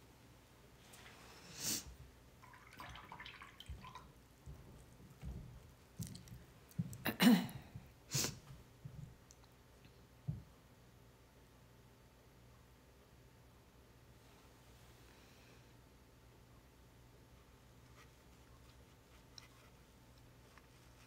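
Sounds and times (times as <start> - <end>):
brush swishes and dabs: 17.4 - 21.0.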